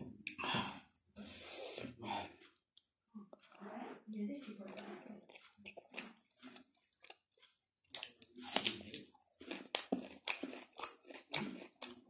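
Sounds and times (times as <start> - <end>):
raw onion being bitten and chewed: 4.7 - 12.0.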